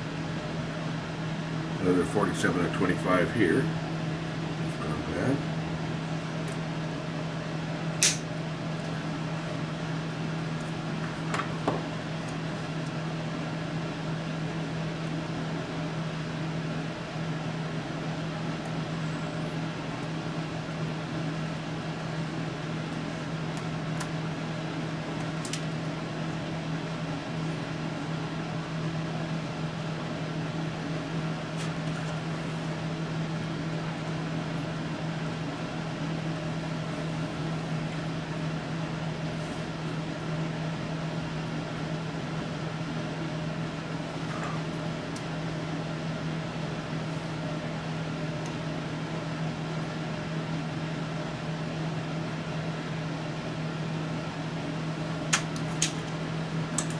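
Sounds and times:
low machine hum: 0.0 - 56.9.

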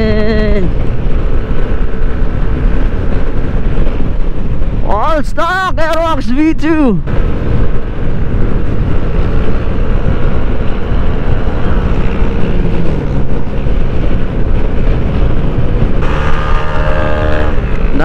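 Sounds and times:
wind rushing on microphone: 0.0 - 18.0
scooter engine droning: 7.8 - 18.0.

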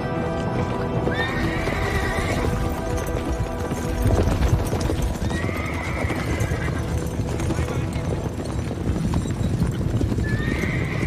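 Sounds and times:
background music: 0.0 - 11.0
horses galloping on dirt: 0.0 - 11.0
horse whinnying: 1.0 - 2.8, 4.6 - 7.1, 10.0 - 11.0.

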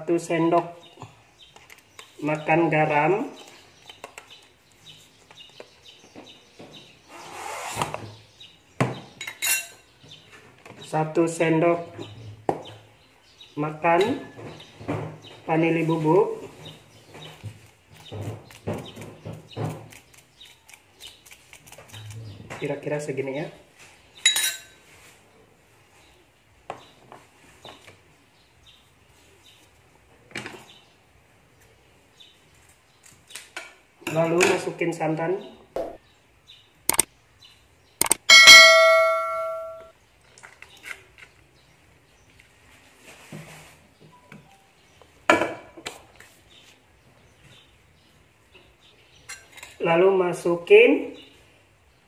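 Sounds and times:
metal spoon clinking against wok: 9.2 - 9.8, 24.3 - 24.8, 38.3 - 39.9
small clicks: 36.9 - 37.1, 38.0 - 38.2.

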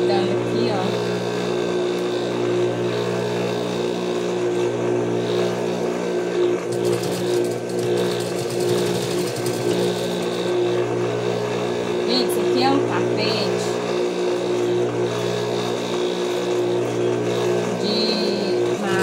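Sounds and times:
sewing machine motor humming: 0.0 - 19.0
rapid stitching through fabric: 6.7 - 10.5.

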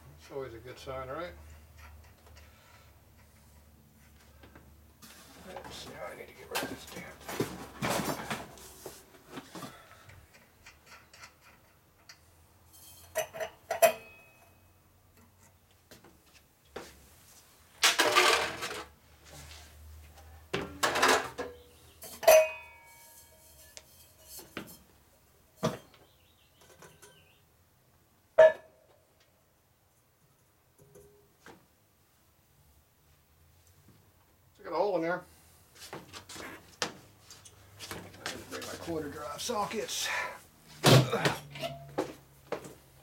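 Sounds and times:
metal tools clinking and clanking: 10.6 - 14.6, 20.8 - 24.9, 26.6 - 27.3
metal rattling and scraping: 17.8 - 18.9.

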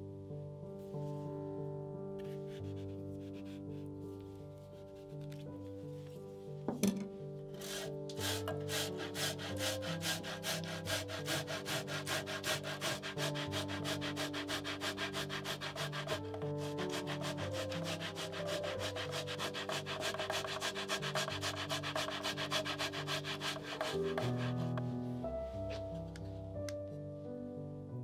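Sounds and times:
background music: 0.0 - 28.0
tomato rasping on metal grater: 7.6 - 24.8.

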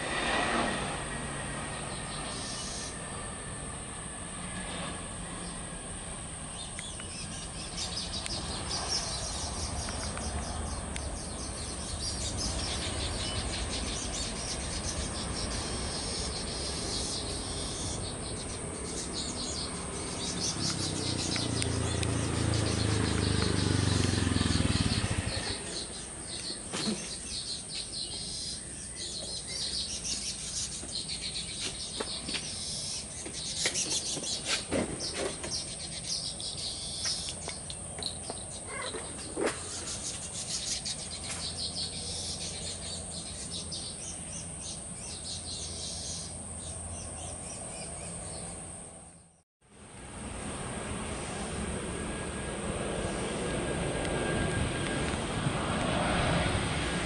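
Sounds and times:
jet engine rumble: 0.0 - 36.0, 49.8 - 57.0
insects chirping: 1.0 - 49.3
birds chirping: 1.3 - 4.1, 5.0 - 49.4.

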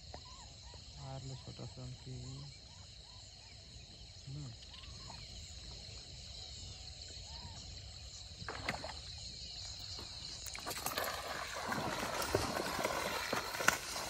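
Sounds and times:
insect chirping: 0.0 - 14.0
water splashing: 10.4 - 14.0.

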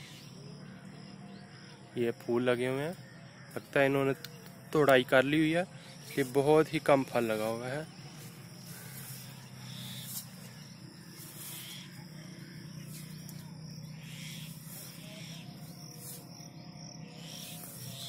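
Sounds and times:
high chirps: 7.2 - 18.0.

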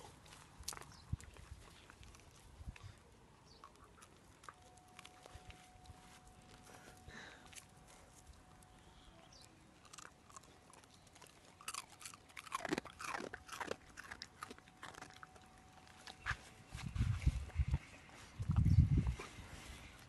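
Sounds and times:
dog chewing and crunching: 0.0 - 16.4.

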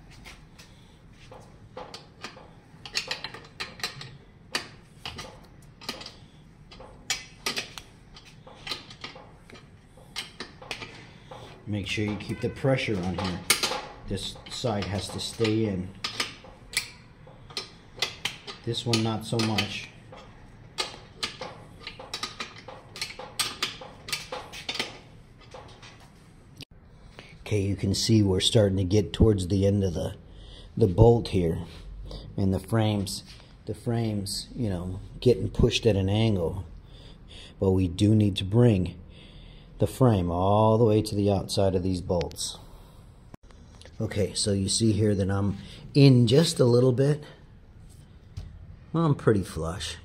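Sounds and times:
metal clicks and taps: 1.3 - 12.3, 13.0 - 25.8.

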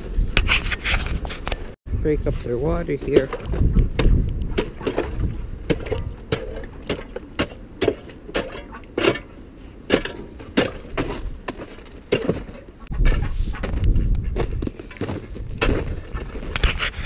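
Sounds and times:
ice knocking and cracking: 9.9 - 12.7, 14.4 - 16.6.

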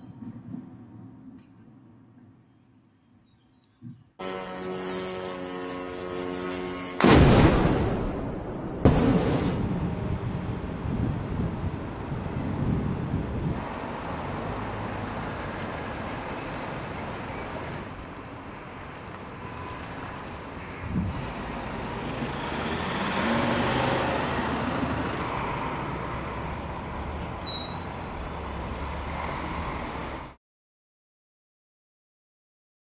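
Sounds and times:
steady traffic noise: 0.0 - 7.0, 8.2 - 30.4
vehicle passing: 21.1 - 26.4, 28.0 - 30.4.

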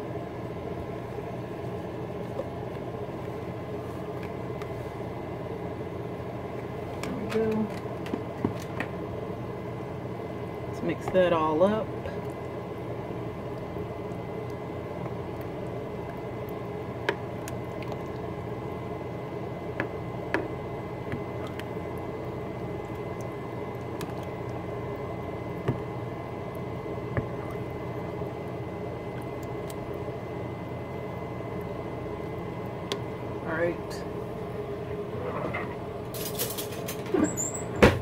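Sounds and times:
steady hum: 0.0 - 38.0
spoon stirring thick chili: 12.2 - 30.2.

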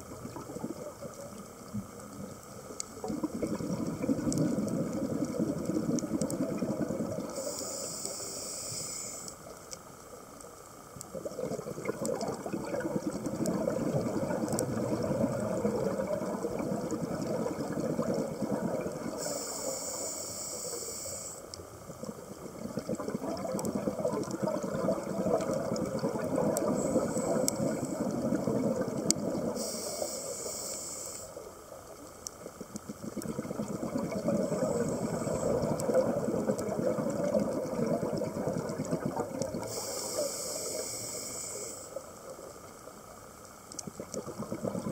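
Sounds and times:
bubbling exhalation underwater: 3.0 - 7.3, 11.1 - 19.2, 22.5 - 29.6, 33.0 - 39.7, 44.0 - 44.9
regulator inhalation hiss: 7.2 - 9.5, 19.1 - 21.6, 26.7 - 28.2, 29.5 - 31.6, 39.6 - 42.3.

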